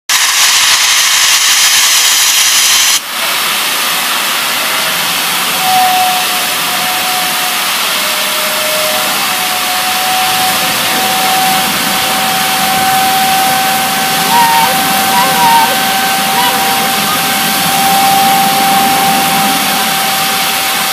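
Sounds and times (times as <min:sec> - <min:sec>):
loud steam hiss: 0:00.1 - 0:20.9
soft steady steam hiss: 0:00.1 - 0:20.9.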